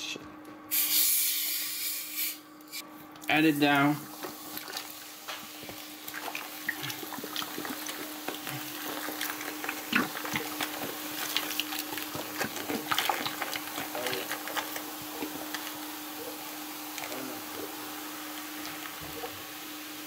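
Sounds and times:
cola pouring and splashing in sink: 4.0 - 19.8
fizzing bubbles crackling: 4.0 - 20.0.

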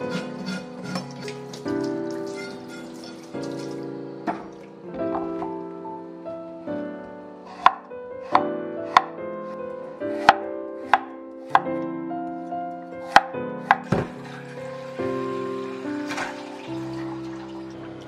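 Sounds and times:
knife chopping on wooden board: 7.5 - 11.8, 13.0 - 14.1.

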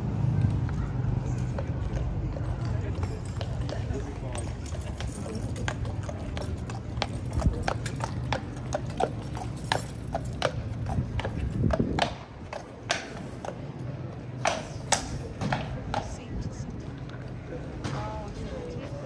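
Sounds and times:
horse hooves clip-clopping: 0.4 - 16.2.

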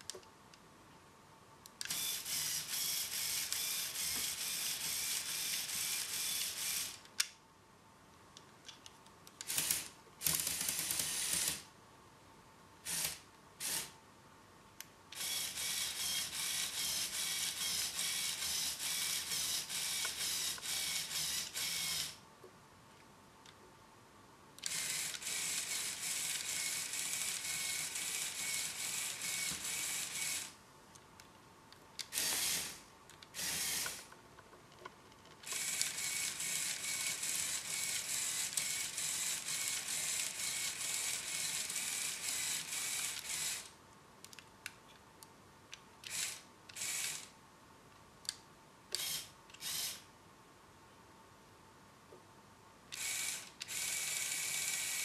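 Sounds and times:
toy electric motors and gears: 1.8 - 7.3, 9.4 - 11.7, 12.8 - 14.0, 15.1 - 22.2, 24.6 - 30.6, 32.0 - 34.2, 35.4 - 43.8, 46.0 - 47.3, 48.9 - 50.1, 52.9 - 55.0.

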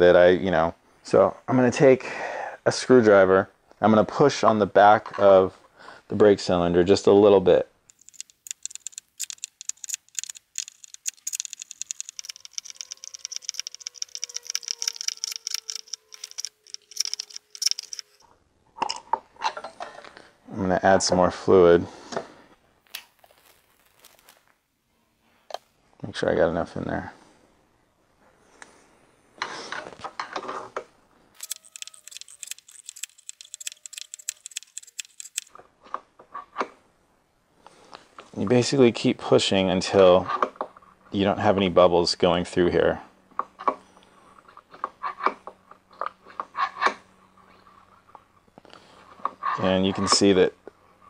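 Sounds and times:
rapid light clicking and rattling: 7.9 - 18.2, 31.4 - 35.6.

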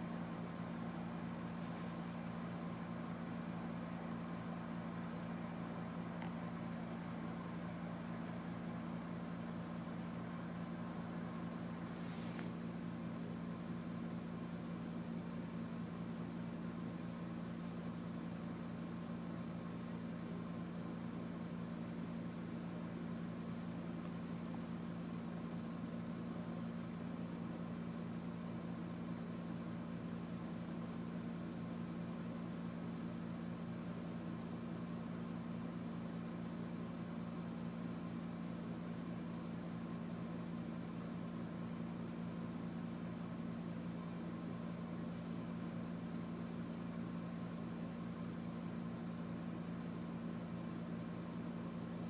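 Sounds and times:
constant hiss: 0.0 - 31.5
steady low hum: 0.0 - 52.0
faint even hiss: 11.3 - 12.9.

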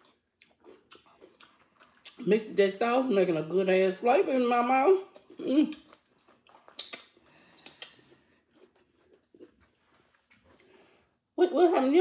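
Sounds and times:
chewing crunchy taco: 0.0 - 2.3, 5.0 - 11.1.

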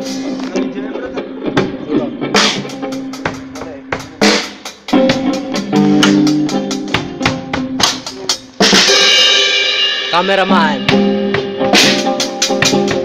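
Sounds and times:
snare and bass drum hits: 3.2 - 9.1
cymbal crash: 8.8 - 12.3.

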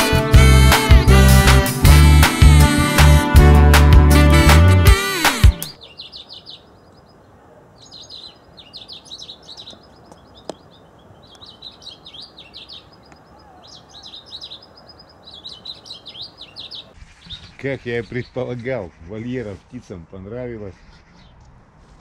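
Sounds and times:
songbirds chirping and singing: 5.3 - 21.5.

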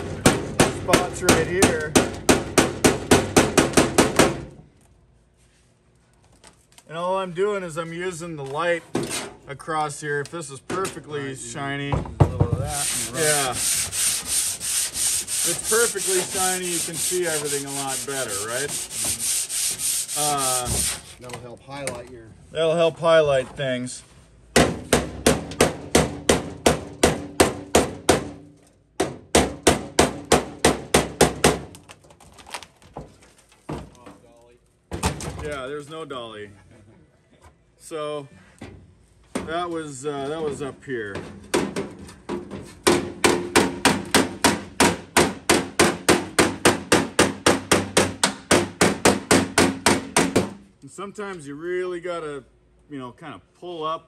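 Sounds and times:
hammer striking sheet steel: 0.0 - 4.5, 42.8 - 50.6.

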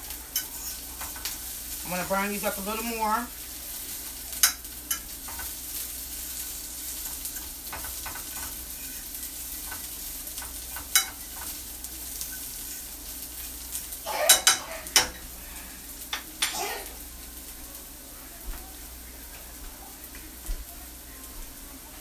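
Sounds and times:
utensil scraping frying pan: 0.0 - 16.7
onions sizzling in frying pan: 0.0 - 22.0.

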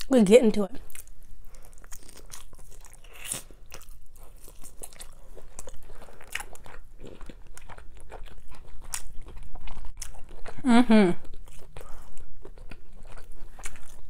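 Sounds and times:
wet chewing: 0.8 - 14.0
biting meat off a rib: 0.9 - 10.6.

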